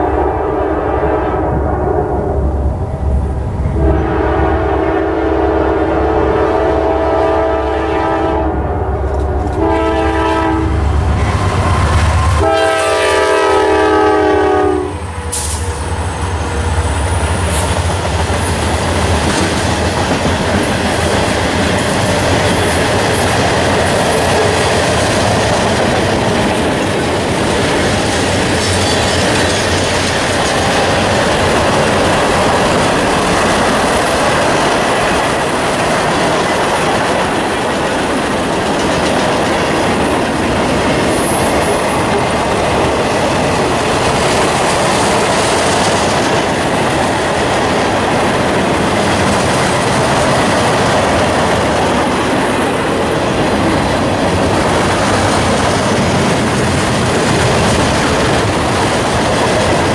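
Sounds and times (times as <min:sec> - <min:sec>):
diesel locomotive rumble: 0:00.0 - 0:59.9
train wheels on rail: 0:00.8 - 0:59.9
locomotive air horn blasts: 0:03.7 - 0:16.8.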